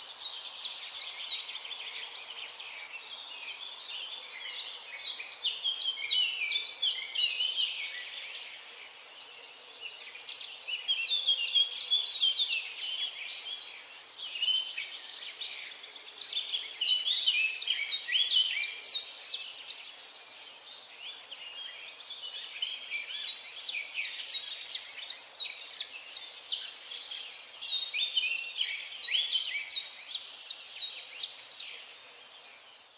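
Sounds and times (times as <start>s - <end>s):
birds singing: 0.0s - 32.9s.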